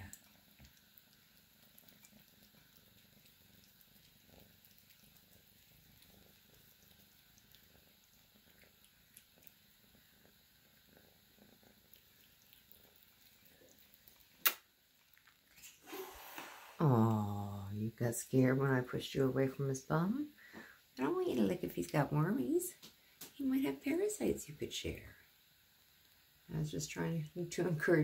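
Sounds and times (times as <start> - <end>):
cat purring: 0.0 - 14.4, 15.4 - 22.8.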